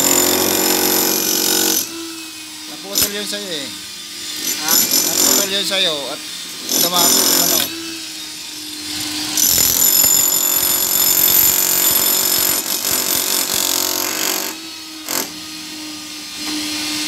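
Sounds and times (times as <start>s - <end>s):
demolition hammer chipping concrete: 0.0s - 1.9s, 4.4s - 5.7s, 6.6s - 7.7s, 9.4s - 15.3s.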